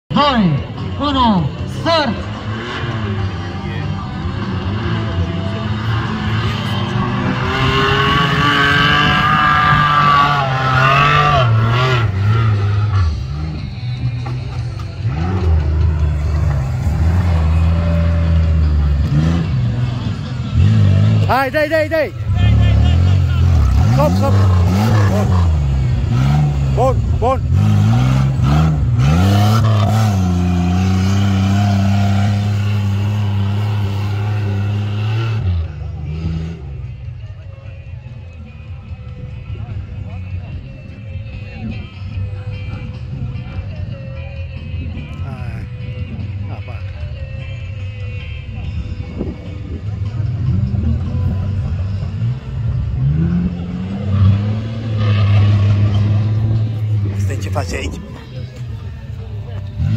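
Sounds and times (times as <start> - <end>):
off-road engines revving hard: 0.1 - 37.1, 49.0 - 59.9.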